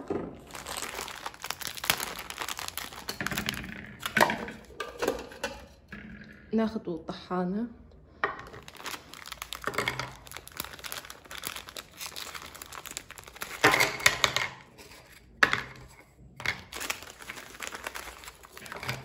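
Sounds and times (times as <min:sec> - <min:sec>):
biscuit wrapper rustling: 0:00.4 - 0:04.7, 0:08.4 - 0:19.0.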